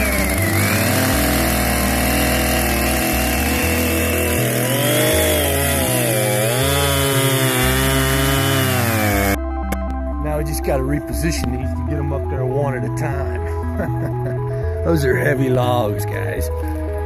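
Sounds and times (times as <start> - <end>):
chainsaw cutting log: 0.0 - 9.4.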